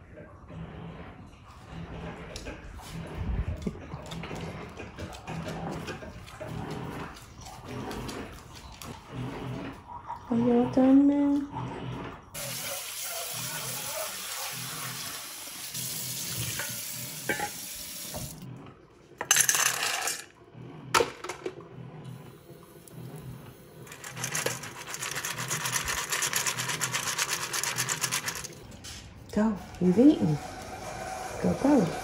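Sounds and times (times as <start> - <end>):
water running from a tap: 12.4 - 18.5.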